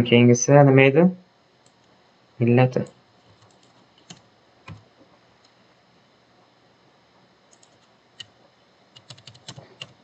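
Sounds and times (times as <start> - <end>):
keyboard keys clicking: 3.3 - 4.8, 7.5 - 8.3, 9.0 - 10.0.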